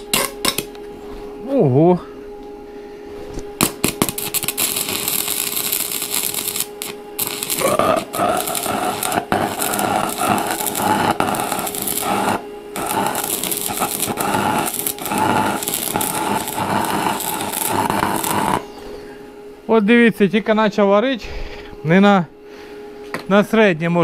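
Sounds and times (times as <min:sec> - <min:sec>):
welding arc crackling: 0:00.0 - 0:00.7, 0:03.6 - 0:18.7.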